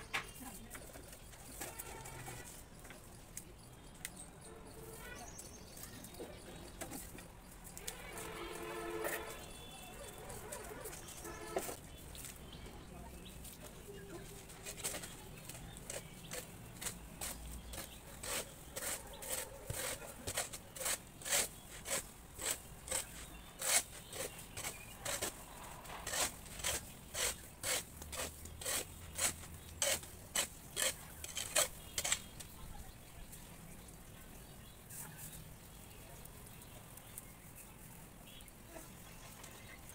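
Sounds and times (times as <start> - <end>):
scraping strokes on plaster wall: 4.4 - 11.9, 13.5 - 32.6.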